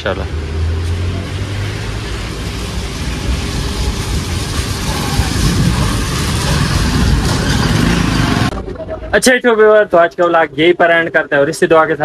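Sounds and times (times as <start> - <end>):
motorcycle passing on wet road: 0.5 - 8.6.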